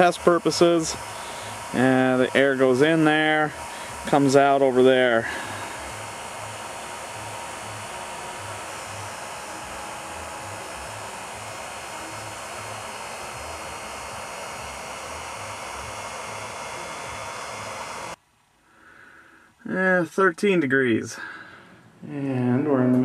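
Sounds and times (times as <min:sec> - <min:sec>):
electric blower whooshing air: 0:00.0 - 0:18.2.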